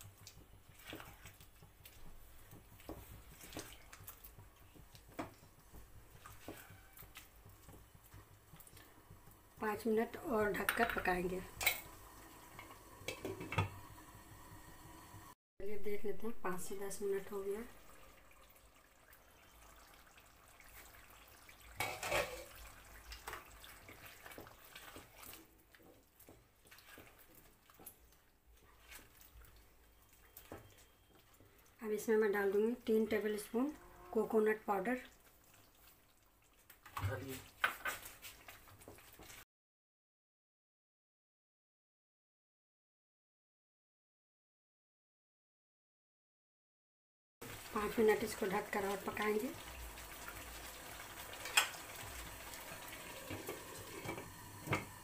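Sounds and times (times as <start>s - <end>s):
stirring clicks and scrapes: 0.0s - 9.6s, 21.8s - 31.7s, 35.2s - 39.4s
faint pops and ticks of cooking: 0.0s - 15.0s, 21.6s - 31.8s, 35.1s - 39.4s, 47.4s - 55.0s
faint bubbling simmer: 0.0s - 15.4s, 16.0s - 39.4s, 47.4s - 55.0s
metal cookware clatter: 10.6s - 11.9s, 13.0s - 13.7s, 21.8s - 22.6s.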